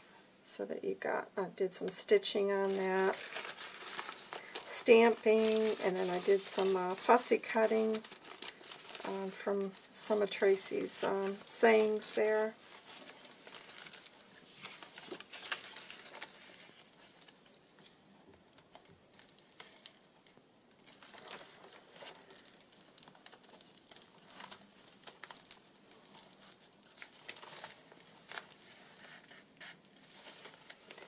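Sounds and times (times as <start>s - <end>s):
paper rustling and crinkling: 1.8s - 31.0s
crisp paper ticks: 2.6s - 31.0s.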